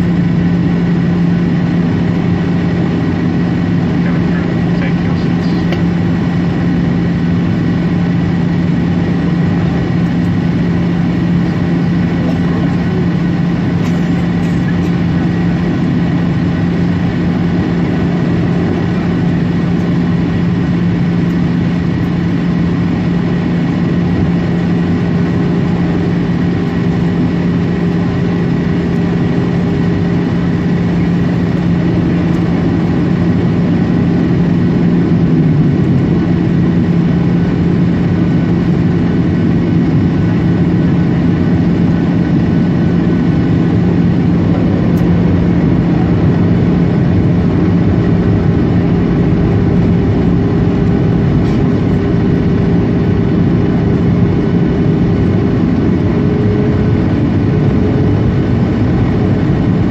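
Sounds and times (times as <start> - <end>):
jet airliner cabin drone: 0.0 - 59.9.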